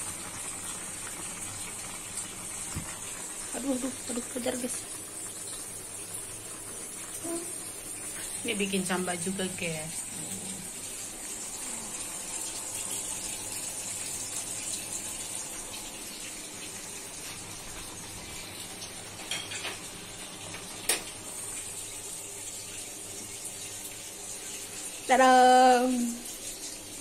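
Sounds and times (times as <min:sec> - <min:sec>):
noodles boiling bubbling: 0:00.0 - 0:27.0.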